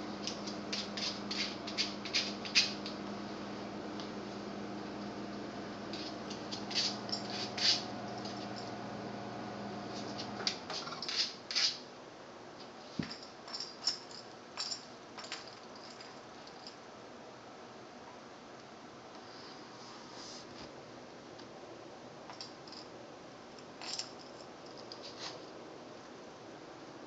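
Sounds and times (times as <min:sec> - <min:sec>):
steady low hum: 0:00.0 - 0:11.2.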